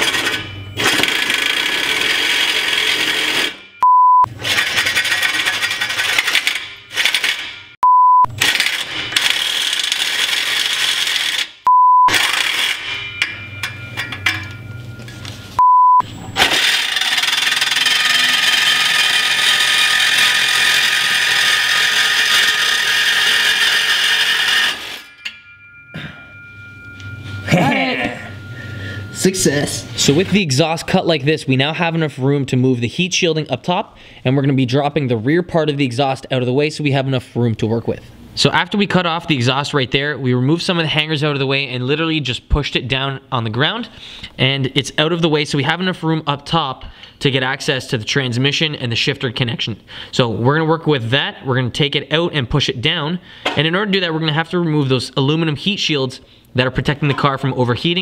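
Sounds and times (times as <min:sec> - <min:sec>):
hacksaw cutting metal pipe: 0:00.0 - 0:03.6, 0:16.4 - 0:25.4
loud single-pitch beeps: 0:03.7 - 0:04.3, 0:07.8 - 0:08.3, 0:11.6 - 0:12.2, 0:14.7 - 0:16.4, 0:26.4 - 0:30.0.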